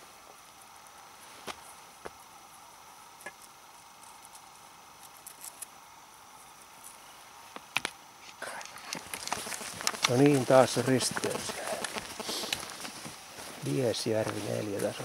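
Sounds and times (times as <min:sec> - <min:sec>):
faint steady hiss: 0:00.0 - 0:15.0
faint clicks and crackles: 0:07.6 - 0:13.2.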